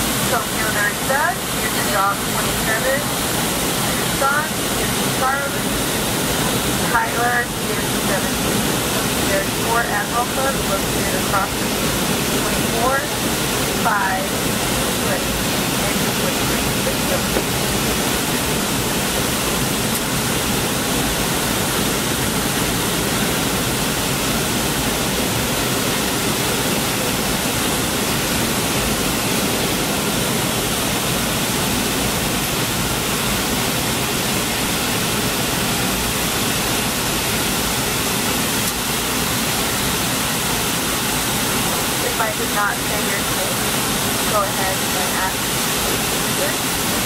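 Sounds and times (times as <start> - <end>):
airliner cabin noise: 0.0 - 35.8.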